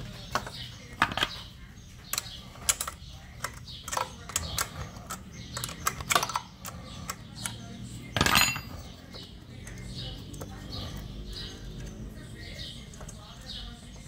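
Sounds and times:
hand tools clicking on metal: 0:02.0 - 0:12.2
metallic rattle: 0:08.1 - 0:10.1.

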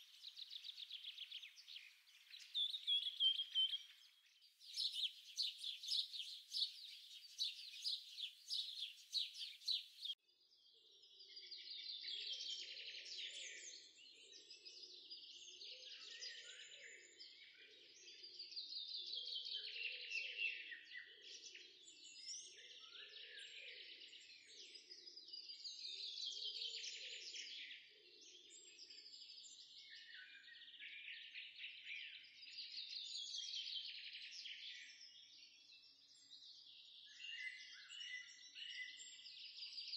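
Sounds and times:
small birds chirping: 0:00.0 - 0:10.2, 0:25.2 - 0:39.9.

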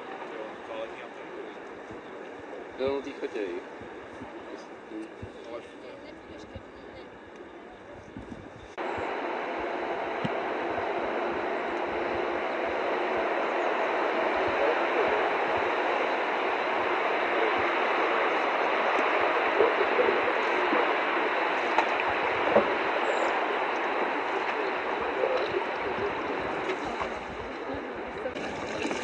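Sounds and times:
river water rushing: 0:28.2 - 0:29.0.

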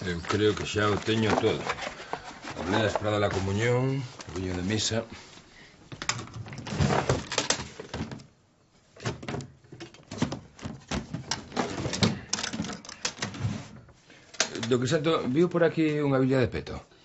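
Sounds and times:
objects knocking and clinking: 0:09.2 - 0:13.4.

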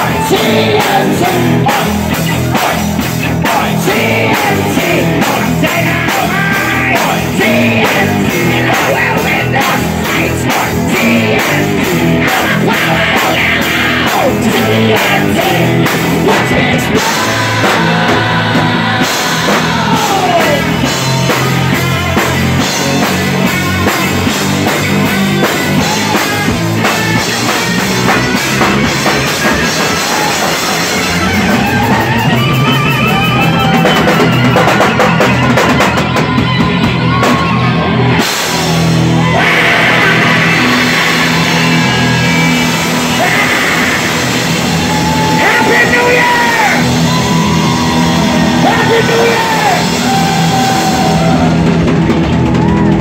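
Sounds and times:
drum kit with crashing cymbals: 0:00.0 - 0:53.0
electric guitar: 0:00.0 - 0:53.0.

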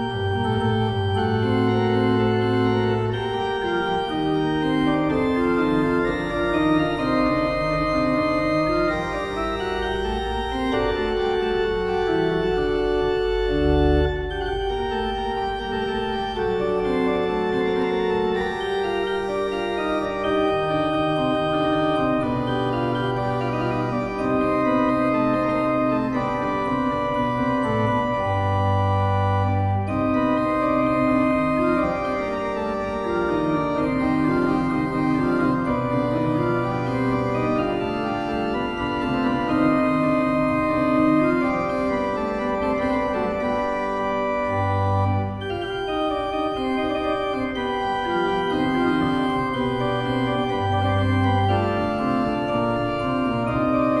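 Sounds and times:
chamber organ chords: 0:00.0 - 0:54.0.

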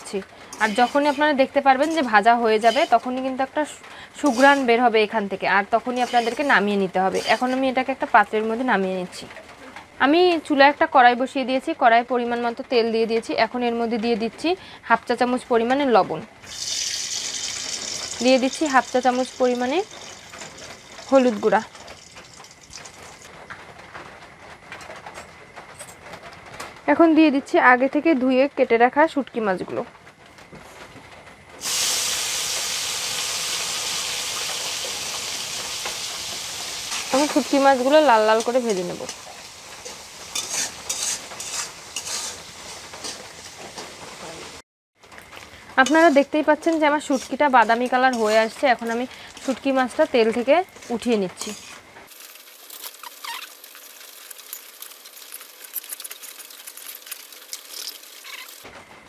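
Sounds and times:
fish sizzling in hot oil: 0:00.0 - 0:08.2, 0:16.5 - 0:23.4, 0:31.6 - 0:44.6, 0:45.5 - 0:58.7
metal spatula scooping: 0:00.5 - 0:03.2, 0:04.2 - 0:04.8, 0:05.8 - 0:07.7, 0:36.9 - 0:43.6, 0:45.8 - 0:50.2, 0:50.8 - 0:58.6.

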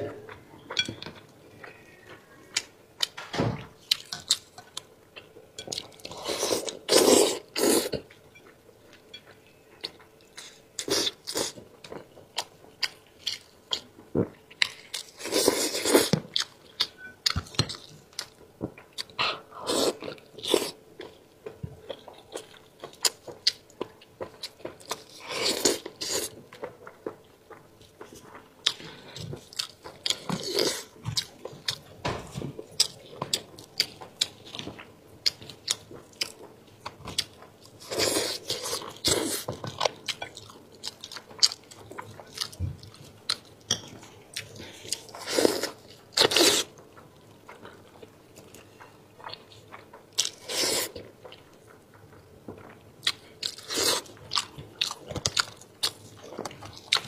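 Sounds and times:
person chewing meat: 0:03.8 - 0:31.9, 0:32.5 - 0:57.0.

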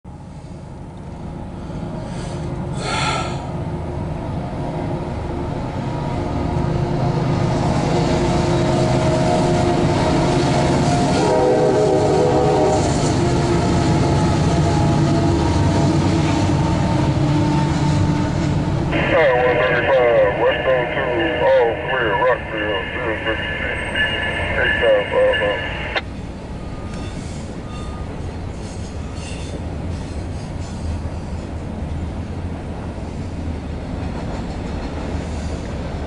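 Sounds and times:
diesel locomotive engines under load: 0:00.1 - 0:36.0.

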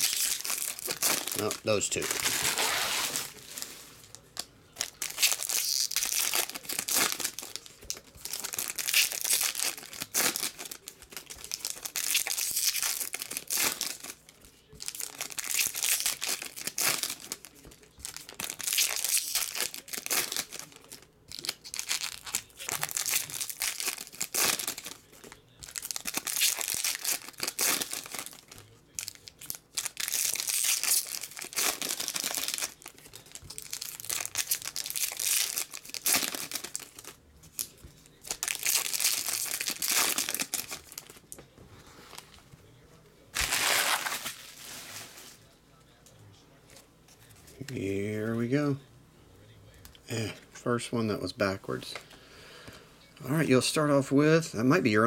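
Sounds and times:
foil packs tearing and crinkling: 0:00.0 - 0:04.2, 0:04.8 - 0:41.2, 0:43.4 - 0:45.4.

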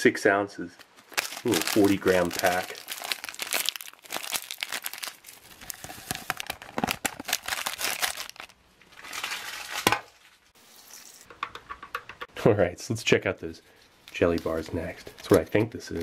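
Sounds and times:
packaging crinkling and rustling: 0:00.8 - 0:10.4.

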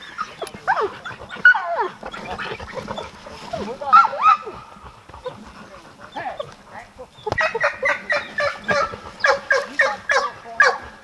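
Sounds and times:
dog barking rapidly: 0:07.3 - 0:11.0.

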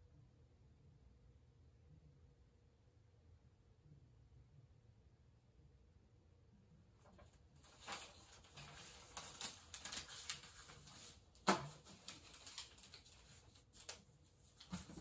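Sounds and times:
paper rustling: 0:07.0 - 0:15.0.

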